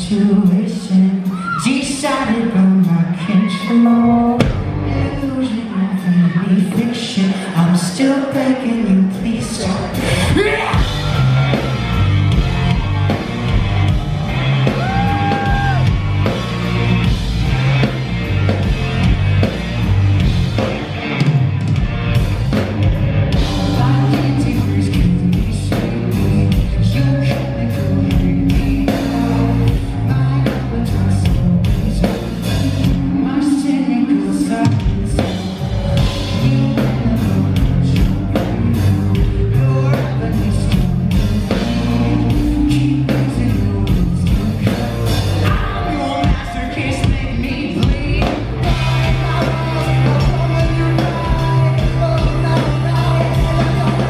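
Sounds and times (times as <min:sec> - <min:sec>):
man screaming and singing: 0:00.0 - 0:08.2, 0:09.2 - 0:13.0, 0:14.6 - 0:16.0
live rock band playing: 0:00.0 - 0:54.0.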